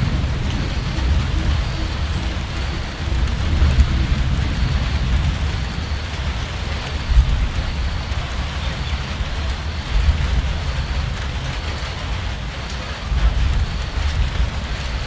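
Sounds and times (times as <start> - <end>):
low rumble: 0.0 - 15.0
steady rain falling: 0.0 - 15.0.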